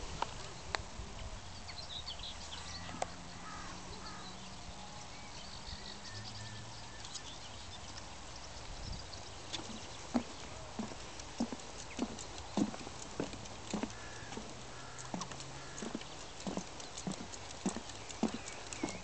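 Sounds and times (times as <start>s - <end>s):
birds chirping: 0.0s - 19.0s
footsteps on wooden boardwalk: 9.2s - 19.0s.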